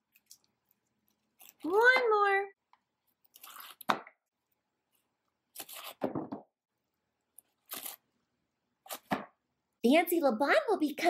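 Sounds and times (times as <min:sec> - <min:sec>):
crinkling wrapper and paper rustle: 0:00.0 - 0:01.8, 0:03.1 - 0:03.9, 0:07.4 - 0:08.1.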